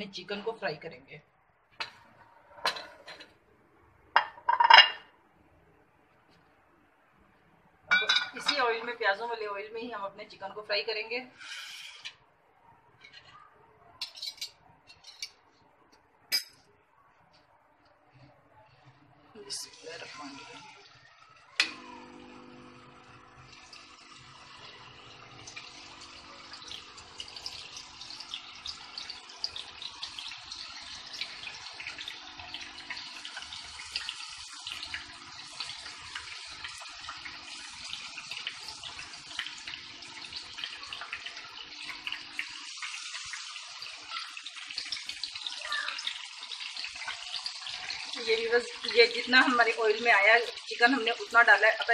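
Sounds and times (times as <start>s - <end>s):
chicken sizzling in hot oil: 11.4s - 12.2s, 19.4s - 51.9s.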